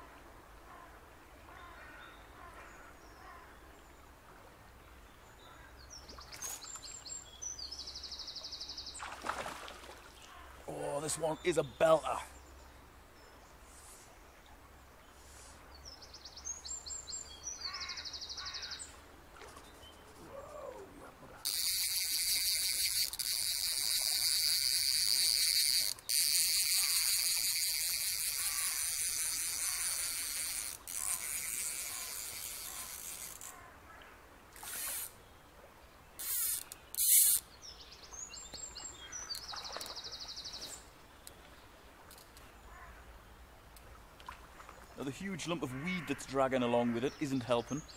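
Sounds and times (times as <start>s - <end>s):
fly reel ratchet clicking: 21.4s - 33.5s, 34.6s - 35.1s, 36.2s - 37.4s
reel buzzing as line pulls out: 21.4s - 33.6s, 34.6s - 35.2s, 36.2s - 37.5s.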